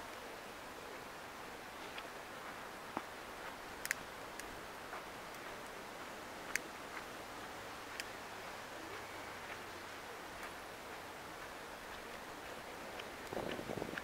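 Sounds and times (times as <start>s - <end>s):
faint background hiss: 0.0s - 14.0s
sharp clicks: 3.8s - 4.5s.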